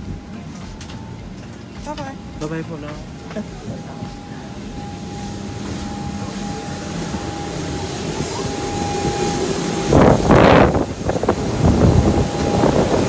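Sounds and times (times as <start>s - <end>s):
airliner cabin hum: 0.0s - 13.0s
thin steady tone: 2.1s - 13.0s
wind buffeting microphone: 5.8s - 13.0s.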